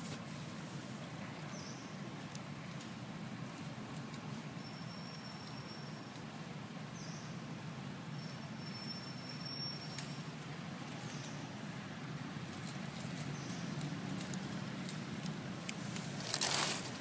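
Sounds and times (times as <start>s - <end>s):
low outdoor rumble: 0.0s - 17.0s
faint high chirps: 4.6s - 6.2s, 8.2s - 10.3s
thin high whistle: 8.6s - 10.2s.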